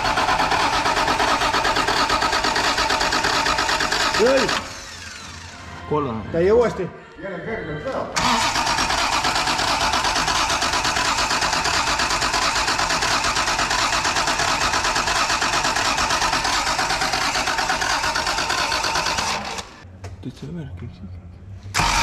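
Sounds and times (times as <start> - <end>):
engine cranking on starter motor: 0.0 - 5.5, 8.2 - 19.8, 21.7 - 22.0.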